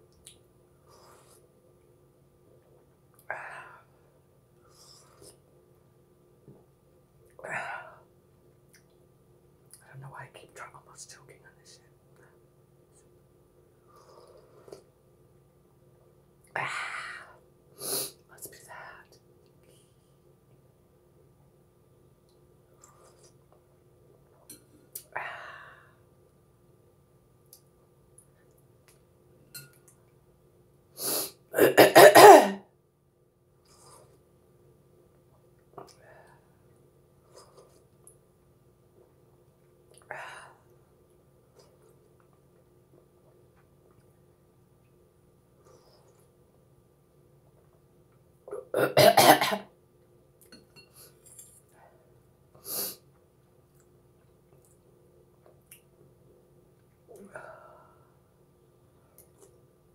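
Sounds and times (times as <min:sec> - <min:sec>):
woman coughing: 0:31.6 - 0:32.6, 0:48.8 - 0:49.6.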